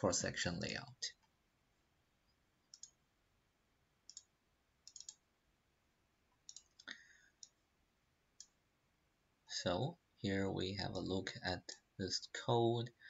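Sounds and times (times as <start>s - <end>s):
computer mouse clicks: 2.6s - 3.0s, 4.1s - 5.2s, 6.4s - 7.6s, 8.4s - 8.6s.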